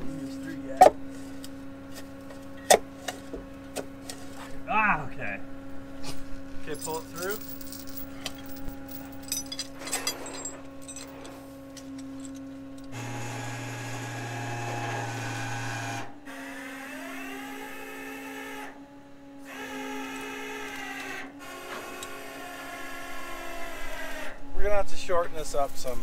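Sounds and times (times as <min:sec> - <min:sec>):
low hum: 0:00.0 - 0:16.2
winch motor whining: 0:06.7 - 0:26.0.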